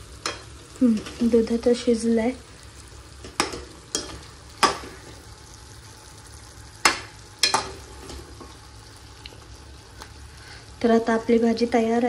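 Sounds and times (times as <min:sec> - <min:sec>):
low sizzle: 0:00.0 - 0:12.0
spoon knocking against pan: 0:03.2 - 0:05.0, 0:06.8 - 0:07.8
spoon stirring in a pan: 0:03.2 - 0:05.2, 0:06.8 - 0:08.6.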